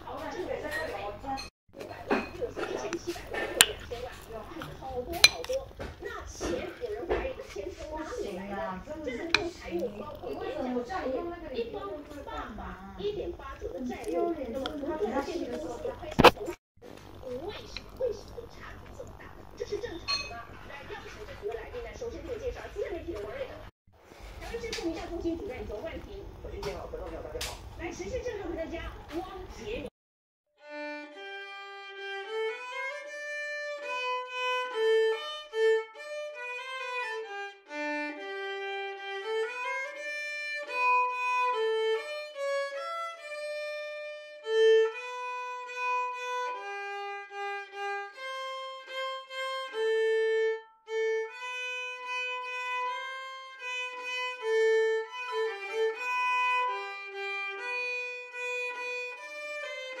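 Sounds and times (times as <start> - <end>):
violin melody: 2.5 - 16.0, 30.6 - 60.0.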